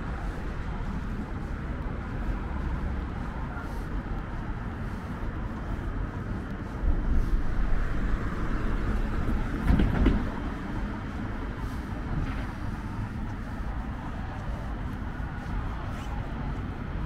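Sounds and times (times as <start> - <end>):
passing vehicle rumble: 0.0 - 17.0.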